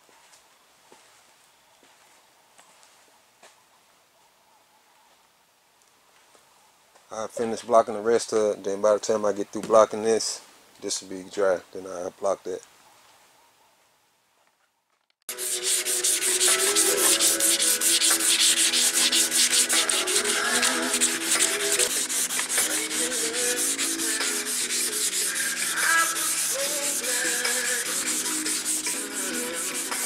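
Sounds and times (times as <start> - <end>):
sanding block scraping: 15.3 - 30.0.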